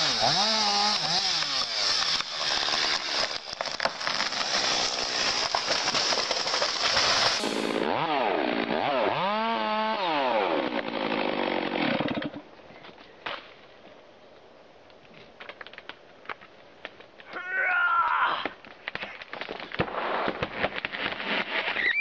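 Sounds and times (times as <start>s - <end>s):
chainsaw revving up and down: 0.0s - 12.4s
chainsaw cutting wood: 0.0s - 12.5s.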